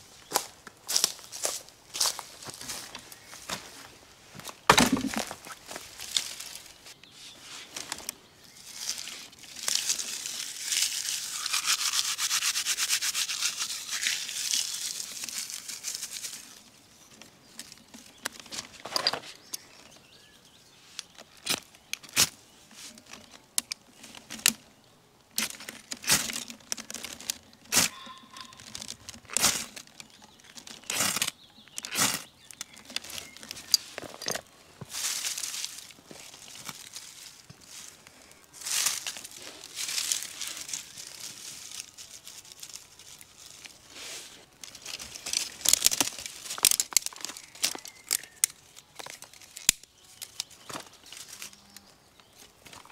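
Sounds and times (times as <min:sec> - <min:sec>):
dry twigs crackling: 0:00.2 - 0:52.9
twigs snapping: 0:04.7 - 0:06.7, 0:44.6 - 0:51.9.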